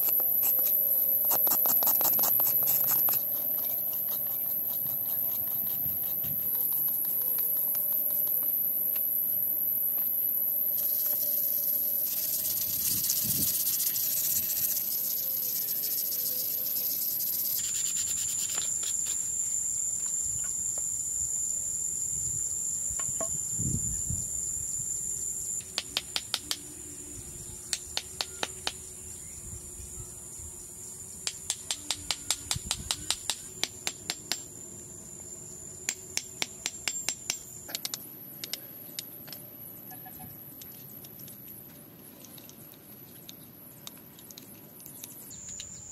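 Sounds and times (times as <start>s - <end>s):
insects droning: 0.0s - 45.9s
sandpaper rubbing on wood: 1.2s - 6.6s, 17.5s - 19.2s.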